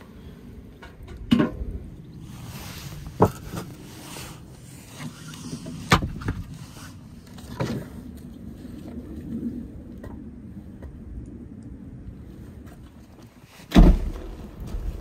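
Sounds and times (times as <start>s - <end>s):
light wooden clatter: 2.8s - 9.4s
firewood logs knocking: 13.7s - 15.0s.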